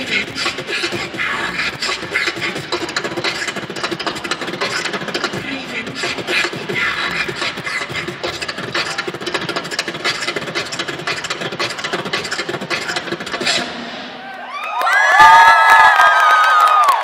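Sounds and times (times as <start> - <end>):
beatboxing through microphone: 0.0 - 14.2.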